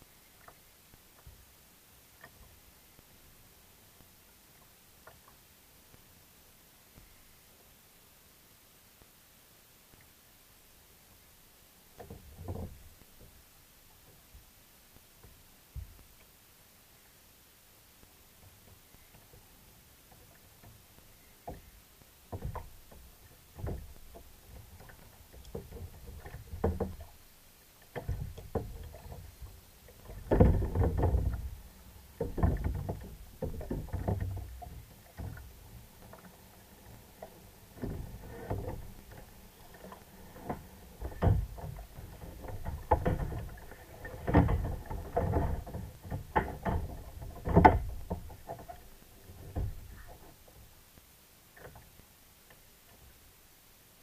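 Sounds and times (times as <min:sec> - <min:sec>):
water slapping kayak hull: 0:18.1 - 0:53.2.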